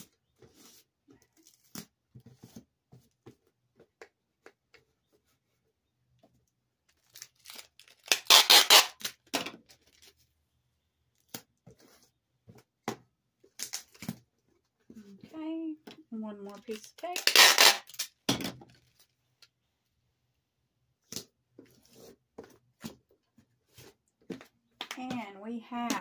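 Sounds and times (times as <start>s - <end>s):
packing tape pulled and torn: 6.9s - 10.2s, 13.6s - 14.2s, 16.5s - 19.5s.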